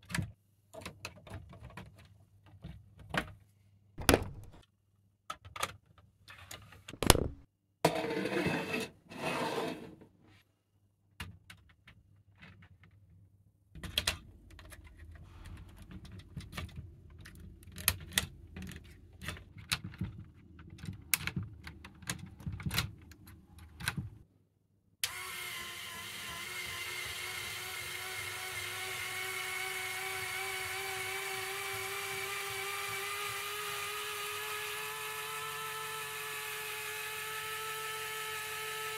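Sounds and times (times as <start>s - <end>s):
plastic parts clicking and snapping: 4.0s - 4.6s, 6.9s - 7.4s, 15.9s - 24.1s.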